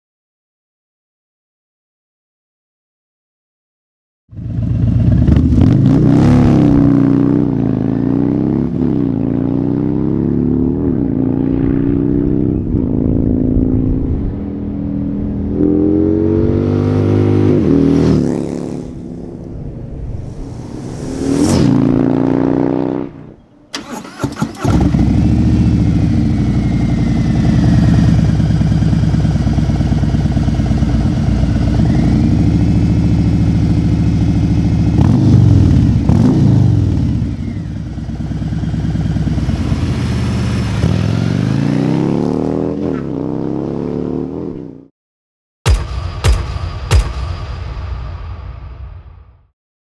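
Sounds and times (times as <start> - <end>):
motorcycle engine revving: 4.3 - 19.9, 20.7 - 44.9
motorcycle riding by: 4.3 - 44.9.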